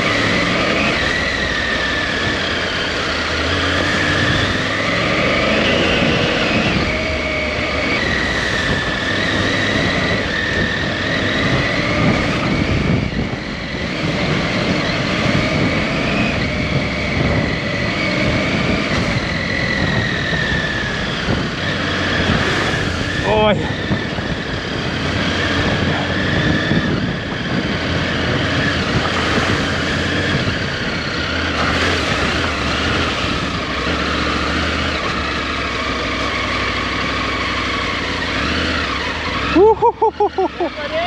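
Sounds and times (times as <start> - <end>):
motorcycle engine running: 0.0 - 41.0
road noise: 0.0 - 41.0
wind rushing: 8.2 - 33.7.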